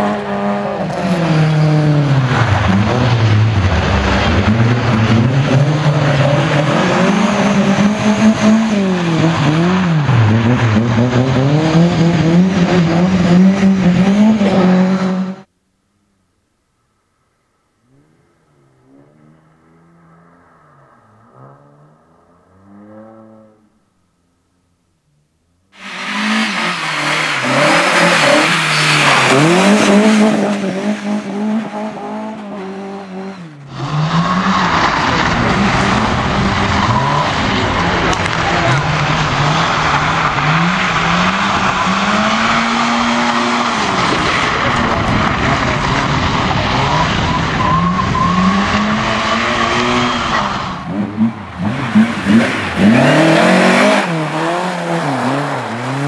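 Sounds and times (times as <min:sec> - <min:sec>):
rally car engine revving: 0:00.0 - 0:15.5, 0:17.8 - 0:23.9, 0:25.7 - 0:56.0
tyres on gravel: 0:25.8 - 0:50.6.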